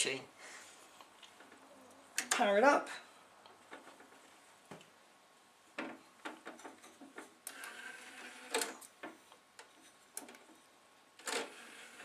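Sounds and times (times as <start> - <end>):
cd tray motor whir: 7.5 - 8.6, 11.2 - 12.0.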